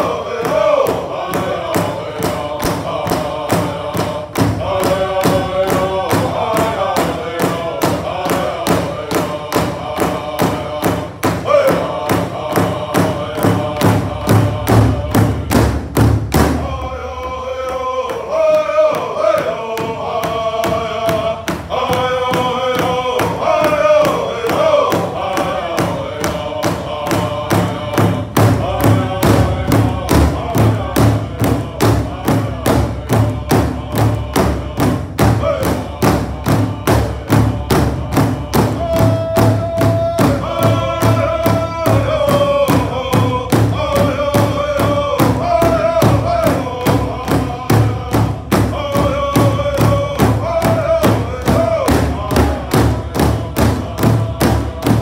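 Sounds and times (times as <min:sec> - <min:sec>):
group singing together: 0:00.0 - 0:55.0
steady drumbeat on large drum: 0:00.0 - 0:55.0.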